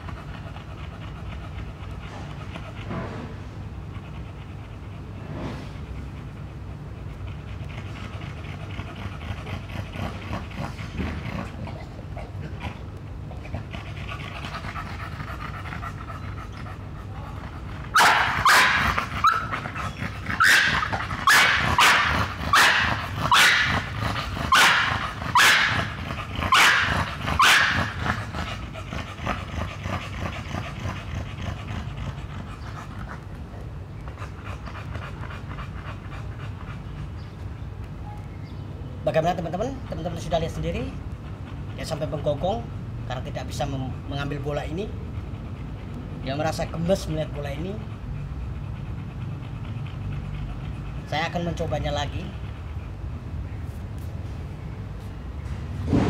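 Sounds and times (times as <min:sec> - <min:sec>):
dog panting: 0:00.0 - 0:38.0, 0:39.1 - 0:55.4
dog barking: 0:18.0 - 0:19.5, 0:20.4 - 0:23.9, 0:24.5 - 0:28.0.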